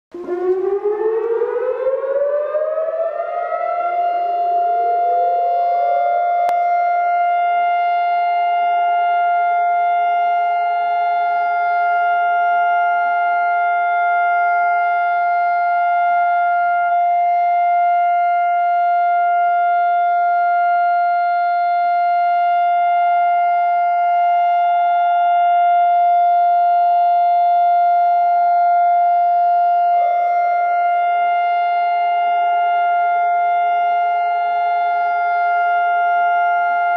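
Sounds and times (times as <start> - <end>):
siren holding steady tone: 0.1 - 36.9
second siren winding up: 0.2 - 10.4.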